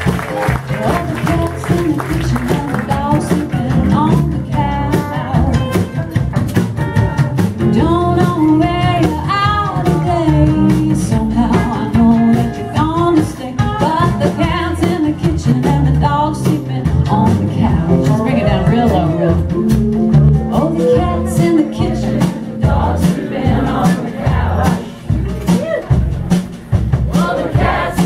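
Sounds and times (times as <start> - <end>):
second guitar: 0.0 - 26.7
drums: 0.0 - 28.0
woman singing: 0.5 - 6.0, 7.6 - 19.6, 20.4 - 25.0.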